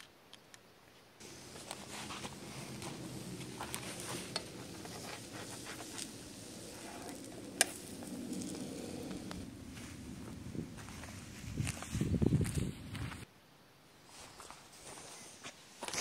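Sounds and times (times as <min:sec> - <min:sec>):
utensil scraping a pan: 0:01.2 - 0:09.6
dough sizzling in a pan: 0:01.2 - 0:09.9.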